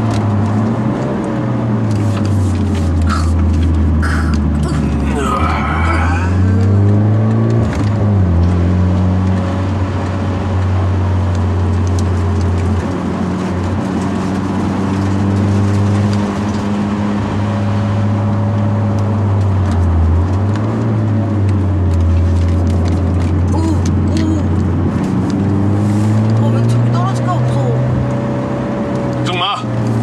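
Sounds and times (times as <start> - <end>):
car engine running: 0.0 - 30.0
road noise hiss: 1.7 - 7.0, 21.3 - 27.5.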